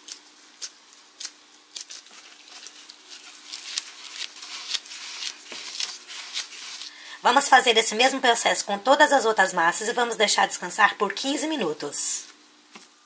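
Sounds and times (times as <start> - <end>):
gloved hands rounding dough: 0.0 - 7.1
faint steady hum: 0.0 - 13.0.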